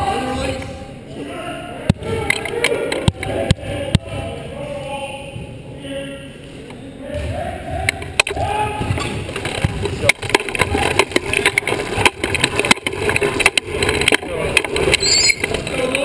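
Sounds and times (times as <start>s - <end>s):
sharp knocks and rattles: 7.9s - 16.0s
wheelchair wheels rumbling: 8.4s - 16.0s
short high squeak: 15.0s - 15.5s.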